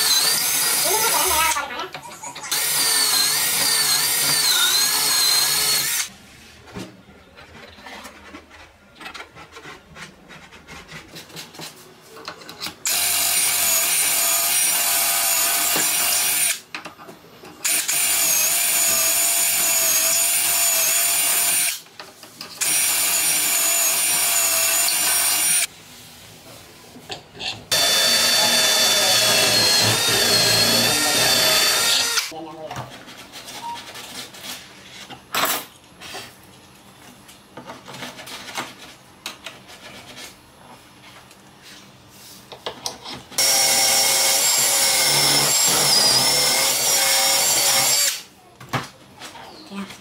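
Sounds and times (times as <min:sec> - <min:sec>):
drill boring into wood: 0:00.0 - 0:01.3, 0:02.5 - 0:06.1, 0:12.9 - 0:16.6, 0:17.6 - 0:21.8, 0:22.6 - 0:25.7, 0:27.7 - 0:32.3, 0:43.4 - 0:48.3.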